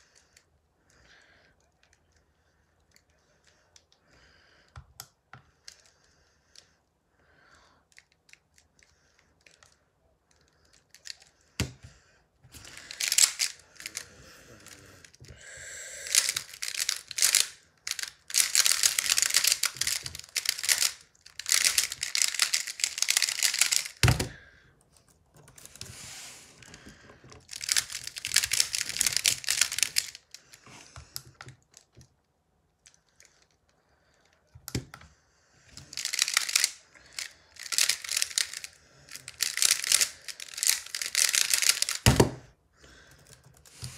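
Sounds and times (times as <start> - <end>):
plastic puzzle clicking and rattling: 7.9 - 11.9, 12.5 - 15.3, 16.0 - 26.0, 26.6 - 30.4, 31.0 - 33.7, 35.7 - 42.4.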